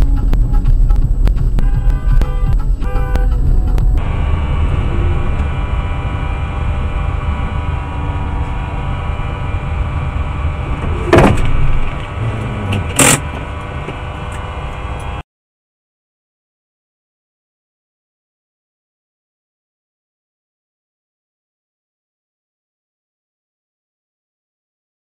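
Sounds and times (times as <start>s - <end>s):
car engine and road drone: 0.0s - 15.2s
sharp knocks: 10.8s - 11.9s.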